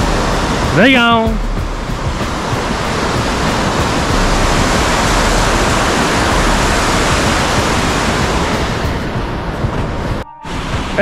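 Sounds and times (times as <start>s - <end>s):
water rushing down canal: 0.0s - 11.0s.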